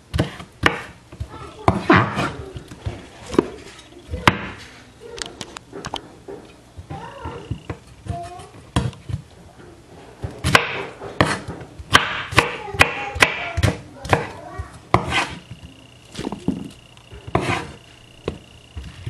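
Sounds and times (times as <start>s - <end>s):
knife chopping on wooden board: 0.1s - 3.5s, 10.4s - 15.6s, 17.3s - 18.4s.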